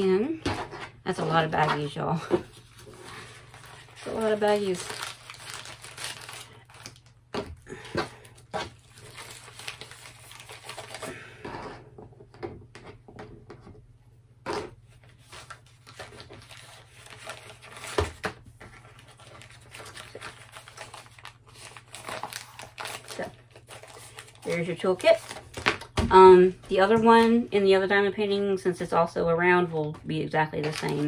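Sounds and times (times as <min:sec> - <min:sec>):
plastic rustling: 0:01.4 - 0:11.4, 0:15.0 - 0:27.3, 0:30.5 - 0:31.0.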